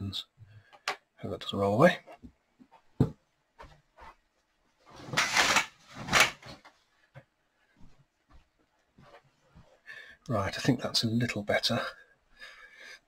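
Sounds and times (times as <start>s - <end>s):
curtains swishing: 4.9s - 6.6s.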